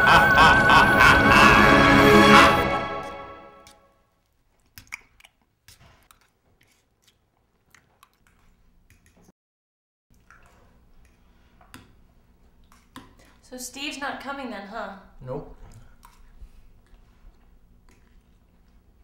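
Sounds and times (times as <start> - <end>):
music: 0.0 - 3.7
faint chewing: 4.2 - 9.3, 10.1 - 13.4, 15.6 - 19.0.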